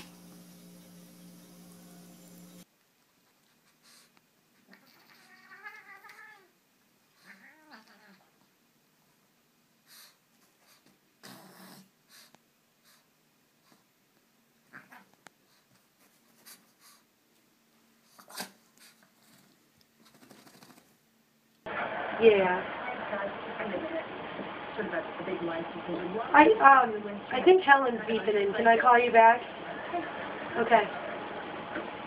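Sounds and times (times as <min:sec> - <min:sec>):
cat meowing: 0:04.8 - 0:06.5, 0:07.2 - 0:08.2.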